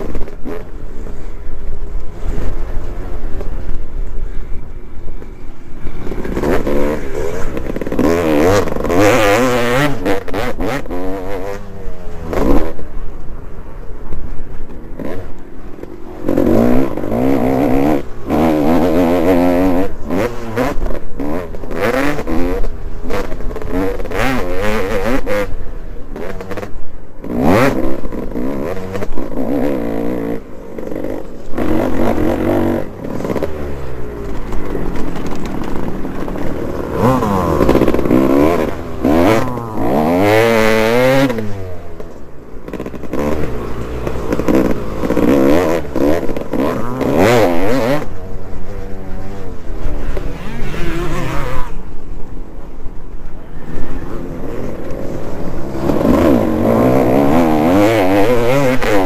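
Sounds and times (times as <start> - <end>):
knocks and rattles over rough ground: 0.0 - 13.3, 26.1 - 59.0
dirt bike engine revving: 5.2 - 13.0, 14.5 - 52.7, 53.4 - 59.0.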